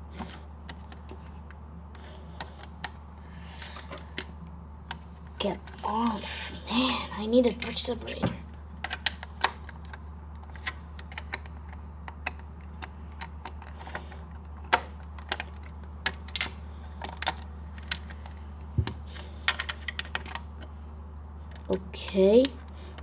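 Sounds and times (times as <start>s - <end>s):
low steady hum: 0.0s - 23.0s
plastic bricks clicking and snapping: 8.8s - 20.5s.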